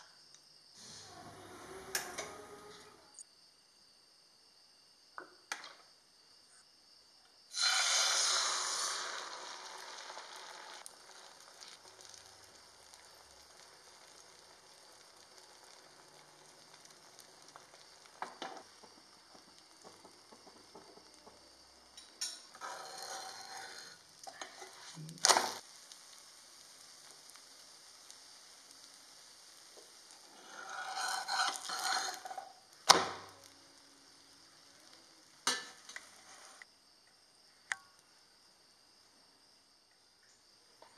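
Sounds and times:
egg frying in hot oil: 7.5 - 36.7.

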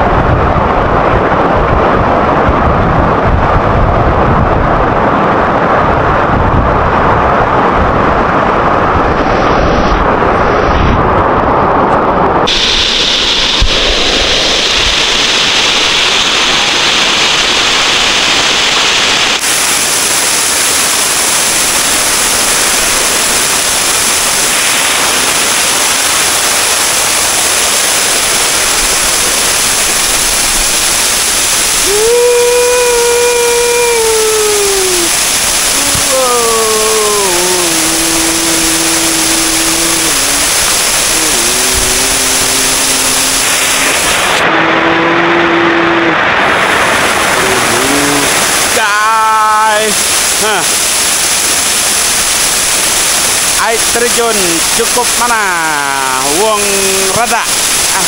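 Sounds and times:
waterfall rushing: 0.0 - 58.0
person calling out a held note: 31.8 - 46.3, 47.4 - 50.7.

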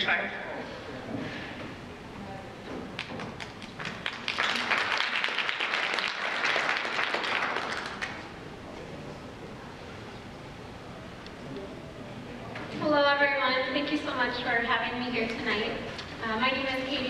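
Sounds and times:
audience applauding: 3.0 - 8.3.

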